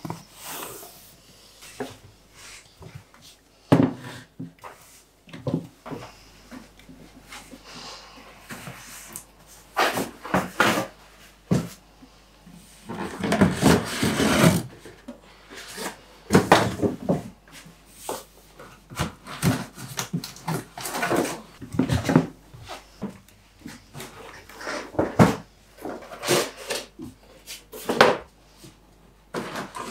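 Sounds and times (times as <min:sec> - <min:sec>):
cardboard boxes scraping on wood: 0:13.0 - 0:14.7.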